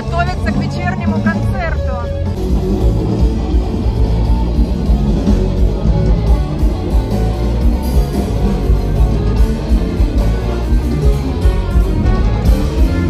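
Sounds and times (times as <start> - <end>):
electric guitar: 0.0 - 13.0
jazz band playing through speakers: 0.0 - 13.0.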